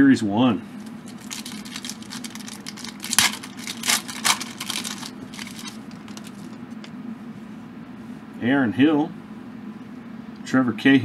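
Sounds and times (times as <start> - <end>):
cards rustling: 0.8 - 6.9
foil crinkling: 0.8 - 6.9
foil wrapper ripping: 0.9 - 6.6.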